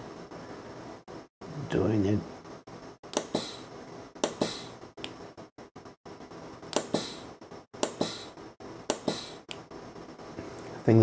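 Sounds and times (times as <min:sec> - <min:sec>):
short hiss of air: 0:03.2 - 0:03.7, 0:06.8 - 0:07.3.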